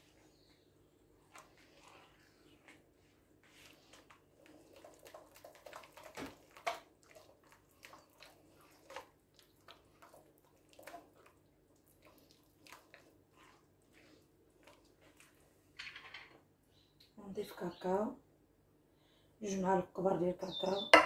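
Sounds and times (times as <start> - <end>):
hand squishing wet batter: 0.0 - 15.7.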